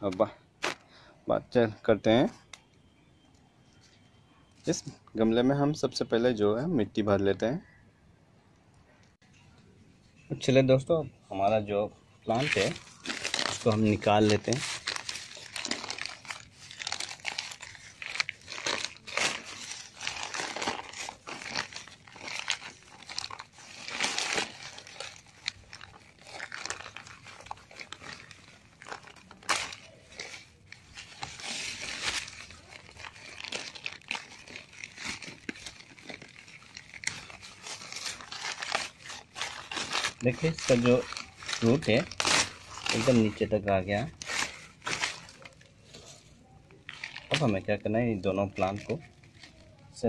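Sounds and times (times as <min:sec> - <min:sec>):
plastic bag crinkling and tearing: 0:12.2 - 0:50.0.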